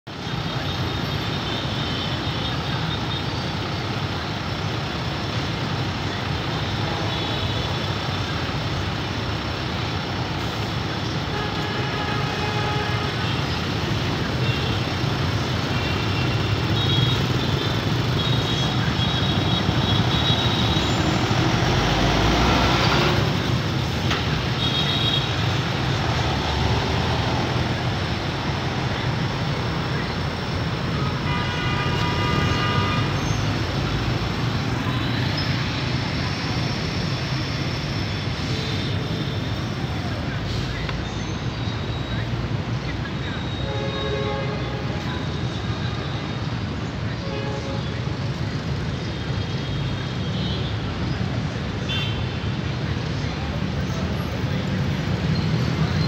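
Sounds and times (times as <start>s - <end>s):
motorbike and car engines: 13.2s - 31.3s
loud vehicle passing: 20.9s - 23.8s.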